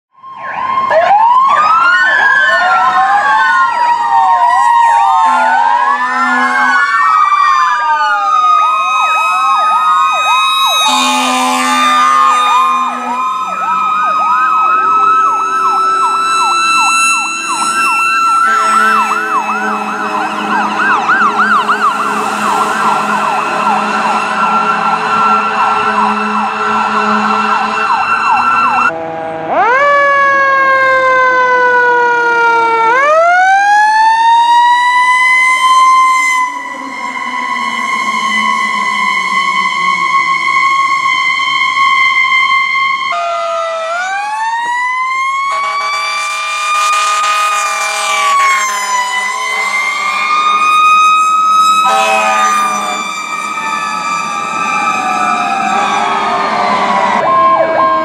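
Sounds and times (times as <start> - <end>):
emergency sirens wailing and yelping: 0.1 - 58.0
fire truck air horn blasts: 4.7 - 8.0, 8.6 - 30.3, 34.4 - 44.0, 44.6 - 55.8.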